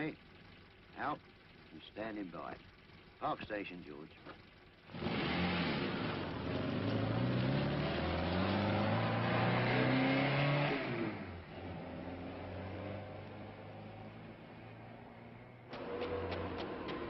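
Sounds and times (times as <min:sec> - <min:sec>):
road noise: 0:00.0 - 0:17.0
car engine accelerating: 0:04.5 - 0:17.0.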